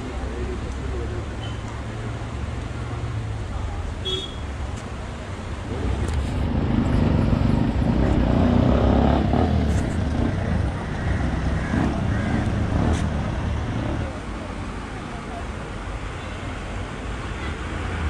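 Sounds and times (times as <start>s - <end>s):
vehicle engines: 0.0s - 18.0s
jeep engine rumbling past: 5.6s - 14.3s.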